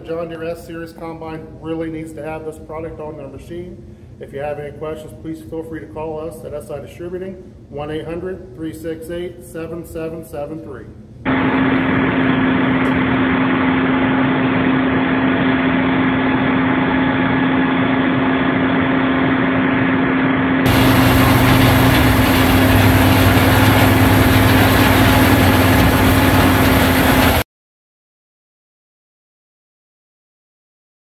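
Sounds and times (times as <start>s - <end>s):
combine harvester running: 11.3s - 27.4s
mechanical drone: 11.3s - 27.4s.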